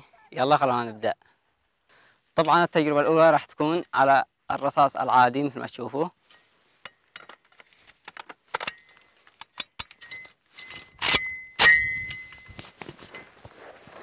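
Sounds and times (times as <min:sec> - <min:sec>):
light metallic clicks and rattles: 0:06.2 - 0:13.0
brief metallic ring: 0:10.0 - 0:12.6.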